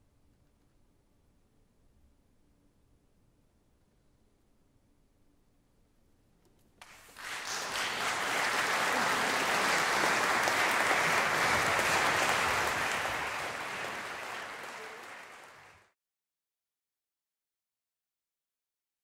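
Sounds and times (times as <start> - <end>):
audience applauding: 6.8 - 16.0.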